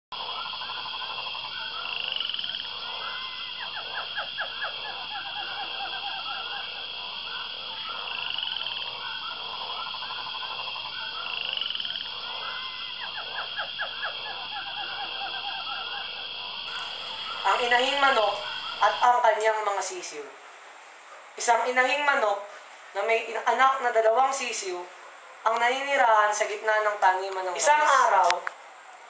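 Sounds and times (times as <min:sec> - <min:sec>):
frogs croaking: 0:00.1 - 0:29.0
steady high drone: 0:16.7 - 0:20.4.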